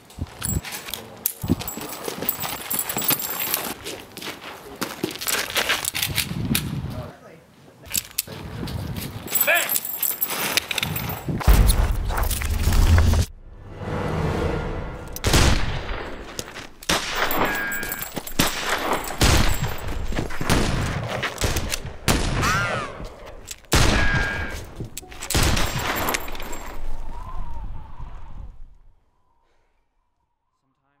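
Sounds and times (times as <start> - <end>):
revolver gunshots echoing: 23.7 - 24.6.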